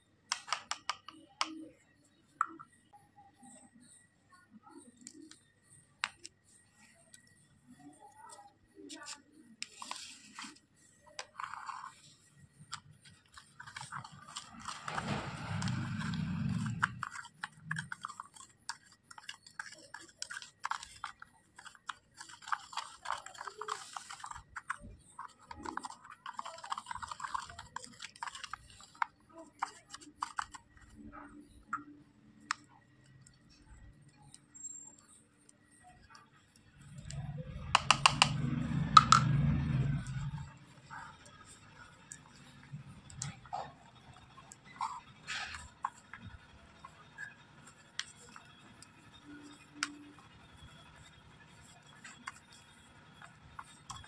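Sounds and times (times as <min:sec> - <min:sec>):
plastic clicking on plastic: 0:00.3 - 0:01.8, 0:36.0 - 0:40.2
spatula scraping gritty powder: 0:09.6 - 0:31.6.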